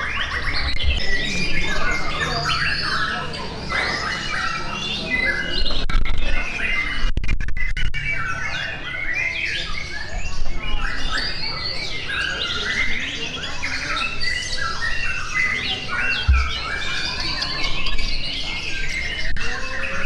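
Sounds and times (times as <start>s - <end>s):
songbirds singing in chorus: 0.0s - 7.1s, 8.0s - 20.0s
short low thump: 16.3s - 16.8s.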